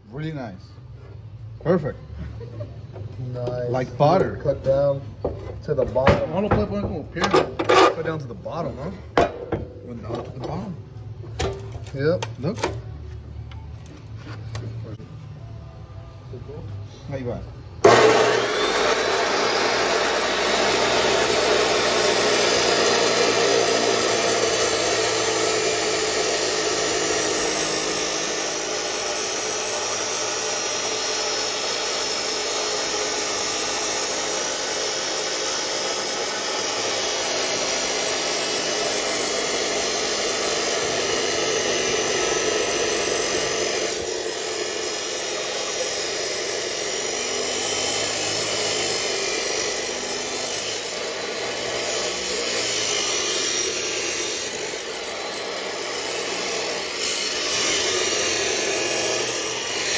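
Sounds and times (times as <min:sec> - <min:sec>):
cut-off saw grinding steel: 0:06.5 - 0:09.0, 0:17.2 - 0:59.9.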